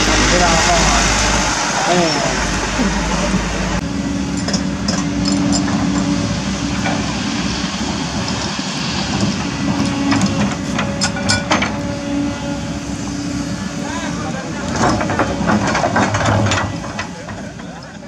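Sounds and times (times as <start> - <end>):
excavator diesel engine humming: 0.0 - 18.0
sharp metallic clanks: 9.2 - 11.8.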